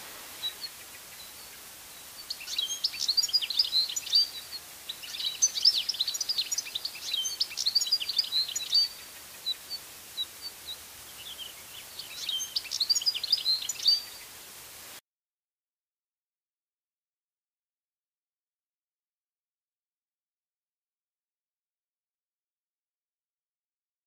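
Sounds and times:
bird twittering song: 0.4 - 14.4.

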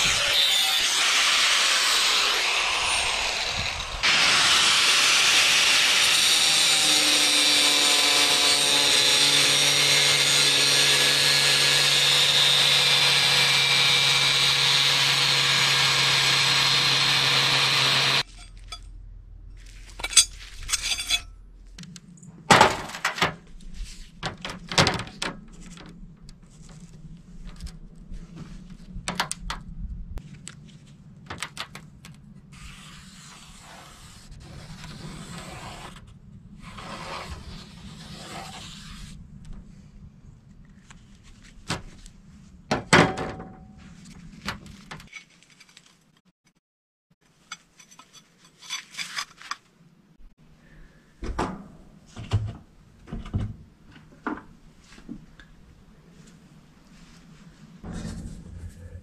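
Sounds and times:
low steady hum: 18.3 - 24.6, 49.8 - 59.0.

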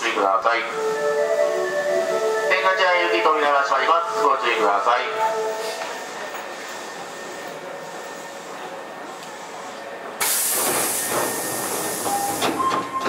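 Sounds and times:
stopped train humming: 0.1 - 13.0
compressed-air hiss of doors: 10.2 - 12.8.

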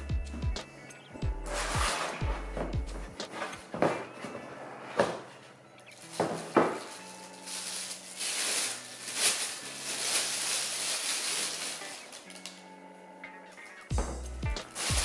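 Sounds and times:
faint background music: 0.0 - 15.0
plastic wrapping crinkling: 1.5 - 15.0.

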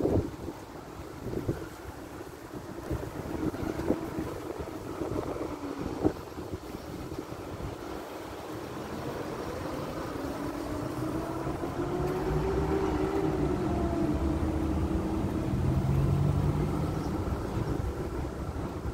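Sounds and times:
vehicle engine passing by: 8.9 - 18.6.

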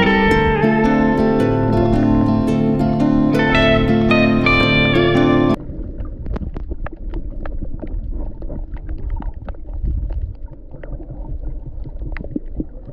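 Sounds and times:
guitar music: 0.0 - 5.6
low rumble of moving water: 5.6 - 12.9.

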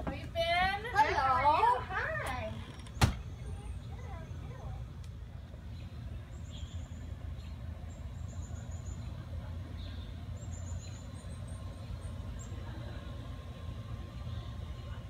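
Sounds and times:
steady low rumble: 0.0 - 15.0
small songbird chirping: 2.9 - 12.7.

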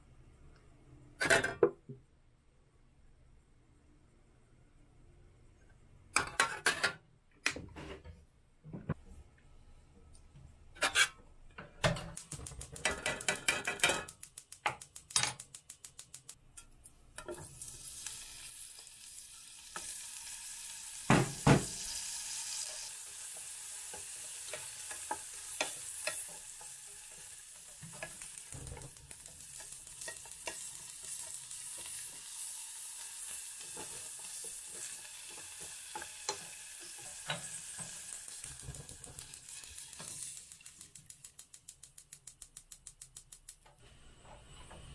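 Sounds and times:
fish strips sizzling in oil: 17.2 - 43.5.

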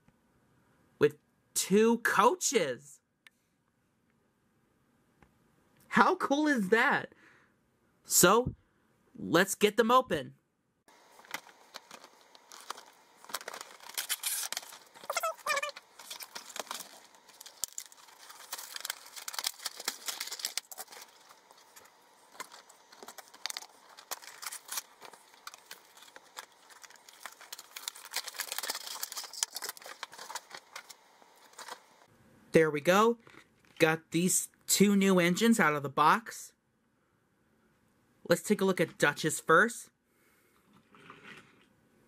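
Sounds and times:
cardboard crinkling and tearing: 10.9 - 32.1.

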